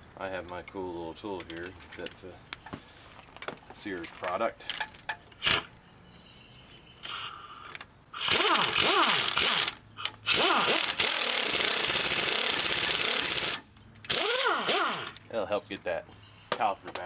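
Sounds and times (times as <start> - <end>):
power wrench spinning: 8.2 - 15.2.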